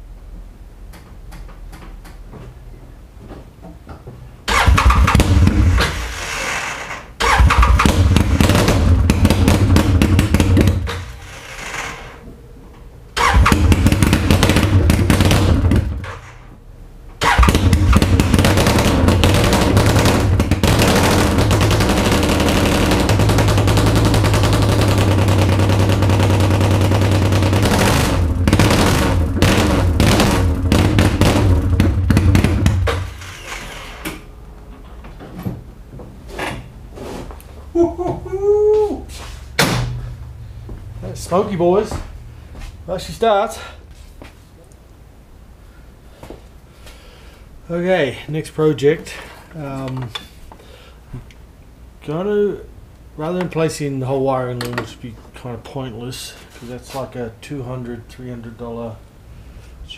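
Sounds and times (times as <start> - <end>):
engine starting and running: 4.5 - 12.2, 13.1 - 16.5, 17.2 - 34.3.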